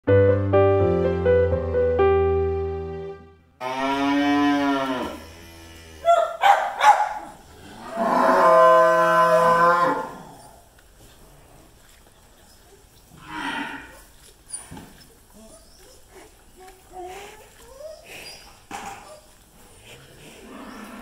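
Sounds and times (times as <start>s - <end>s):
soft piano music: 0.0s - 3.6s
cattle mooing: 3.6s - 6.2s, 7.6s - 10.4s, 13.2s - 14.0s.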